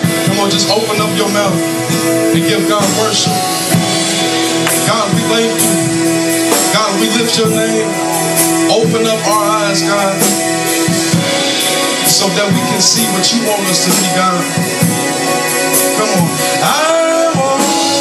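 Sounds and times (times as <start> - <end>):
drums and cymbals: 0.0 - 18.0
keyboard chords: 0.0 - 18.0
person singing: 15.8 - 18.0.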